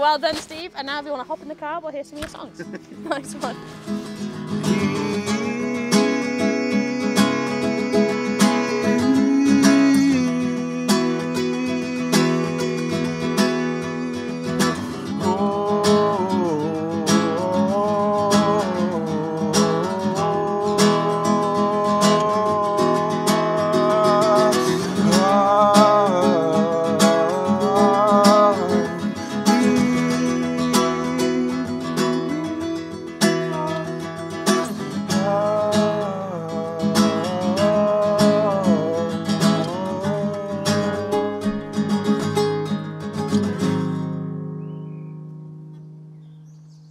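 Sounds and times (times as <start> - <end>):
classical guitar strummed: 1.8 - 46.7
man singing: 4.1 - 41.9.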